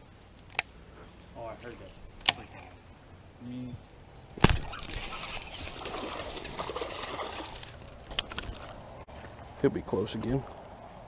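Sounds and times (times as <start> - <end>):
fish splashing at surface: 4.8 - 7.9.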